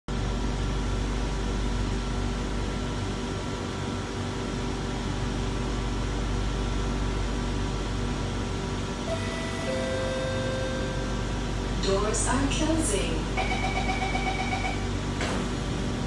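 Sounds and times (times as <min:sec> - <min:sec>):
train air conditioning hum and hiss: 0:00.1 - 0:16.0
faint steady tones: 0:09.1 - 0:11.3.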